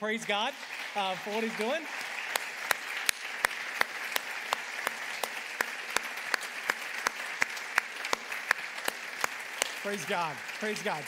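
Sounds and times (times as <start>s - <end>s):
close hand claps: 0.0s - 11.0s
crowd applauding: 0.0s - 11.0s.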